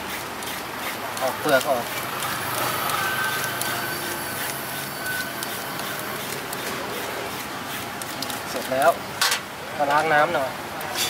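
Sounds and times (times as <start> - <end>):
peeler scraping mango skin: 0.0 - 9.0
outdoor street noise: 0.0 - 11.0
held tone: 2.8 - 6.3.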